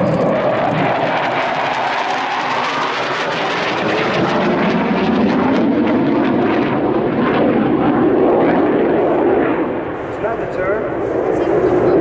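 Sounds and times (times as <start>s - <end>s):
jet engines roaring in flight: 0.0s - 12.0s.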